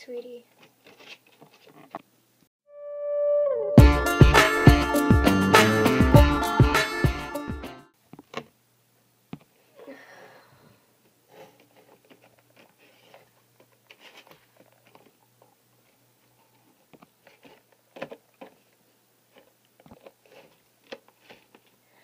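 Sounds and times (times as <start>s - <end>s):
hands handling cardboard props: 0.5s - 2.1s, 11.3s - 15.2s, 15.8s - 21.8s.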